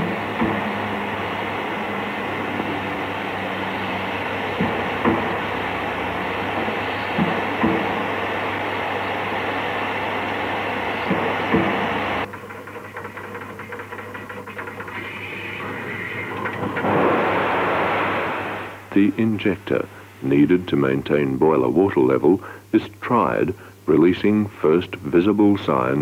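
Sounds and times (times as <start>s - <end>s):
sharp metallic knocks: 0.0s - 3.0s, 4.4s - 8.1s, 11.0s - 18.5s
steam hissing from locomotive: 0.0s - 12.3s, 14.5s - 20.7s, 22.2s - 22.8s.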